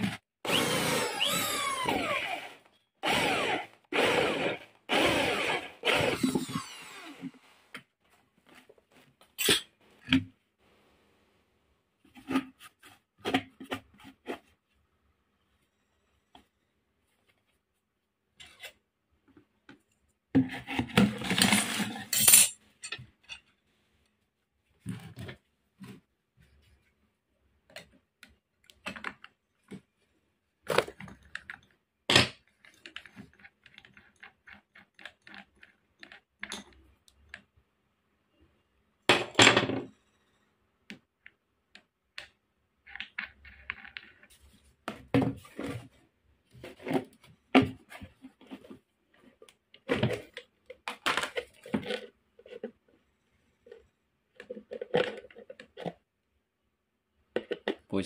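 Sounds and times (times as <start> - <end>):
metal parts clinking and knocking: 21.2 - 23.4.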